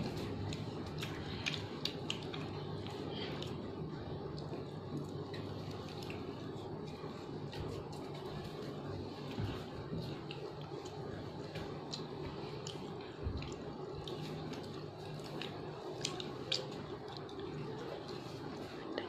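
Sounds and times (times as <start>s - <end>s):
biscuits crunching while chewed: 0.0s - 19.0s
steady low hum: 0.0s - 19.0s.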